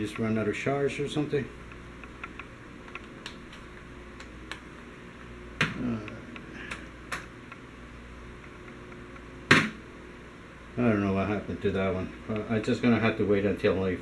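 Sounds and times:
sharp knock: 0:09.5 - 0:09.8.

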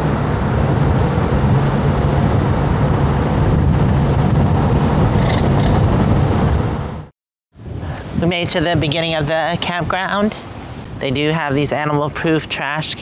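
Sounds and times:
engine and road noise: 0:00.0 - 0:08.2
wind rushing through car window: 0:00.0 - 0:13.0.

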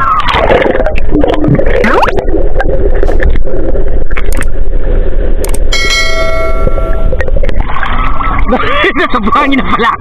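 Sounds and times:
muffled underwater rumble: 0:00.0 - 0:10.0
sharp clicks: 0:05.4 - 0:05.7
bell chime: 0:05.8 - 0:07.1.

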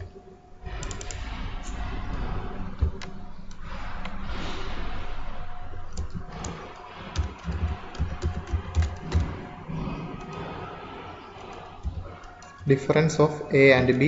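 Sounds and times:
steady background noise: 0:00.0 - 0:14.0
keyboard keystrokes: 0:07.2 - 0:09.4.

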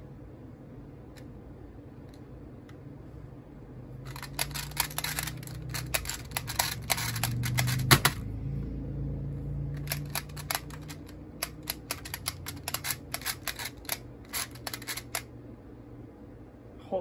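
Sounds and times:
rapid plastic clicks: 0:04.1 - 0:08.2, 0:09.8 - 0:15.3.

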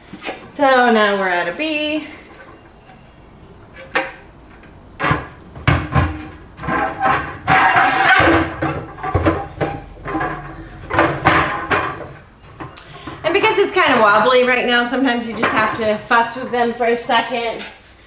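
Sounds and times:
plastic rubbing and scraping: 0:03.7 - 0:18.0.

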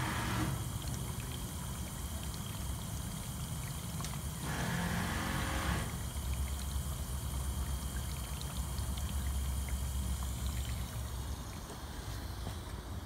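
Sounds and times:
dishwasher humming: 0:00.0 - 0:13.0.

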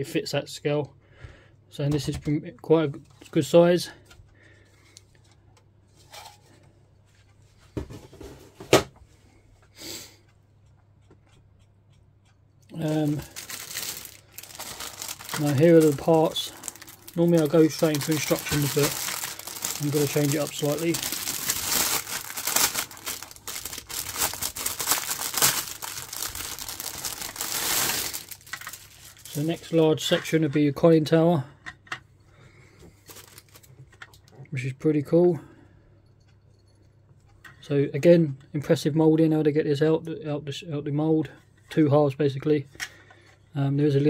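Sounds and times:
plastic bag crinkling: 0:12.7 - 0:30.2, 0:33.0 - 0:33.7.

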